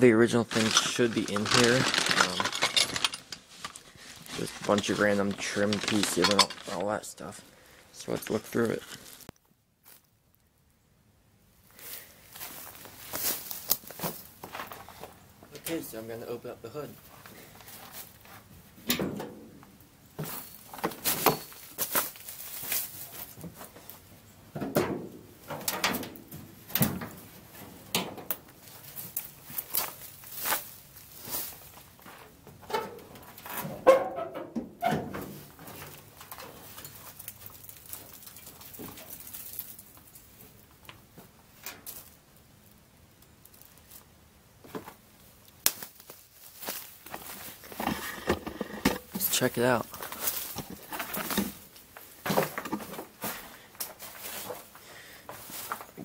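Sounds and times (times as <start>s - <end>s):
footsteps crunching dry leaves: 0.3s - 2.7s, 3.4s - 7.0s, 8.1s - 10.1s, 11.8s - 14.4s, 21.7s - 23.4s, 28.6s - 32.0s, 45.8s - 48.0s, 49.6s - 51.6s.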